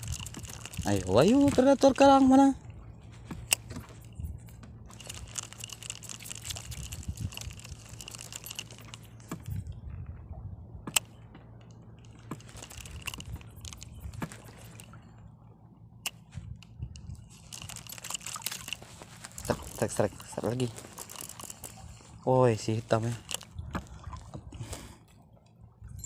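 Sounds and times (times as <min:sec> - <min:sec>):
fishing reel cranking: 0:00.0 - 0:02.4, 0:03.4 - 0:09.6, 0:12.0 - 0:14.9, 0:17.2 - 0:21.9
low steady hum: 0:00.0 - 0:26.0.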